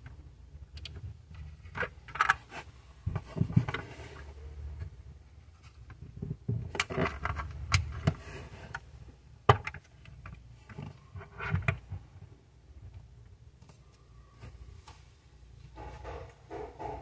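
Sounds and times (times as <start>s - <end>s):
toy car handling clicks and knocks: 0.0s - 3.9s, 5.6s - 12.0s.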